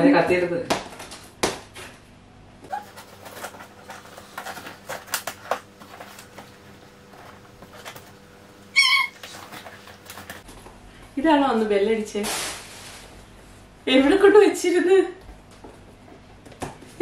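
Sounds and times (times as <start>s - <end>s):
tape and cardboard ripping: 12.2s - 13.0s.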